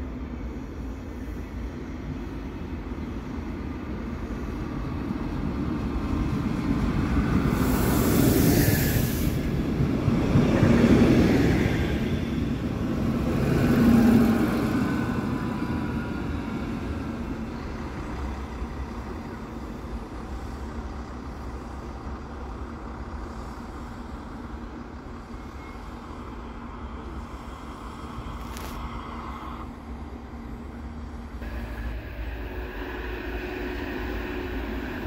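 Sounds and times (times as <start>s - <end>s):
diesel railcar engine whine: 0.0s - 35.0s
steady low rumble: 30.4s - 35.0s.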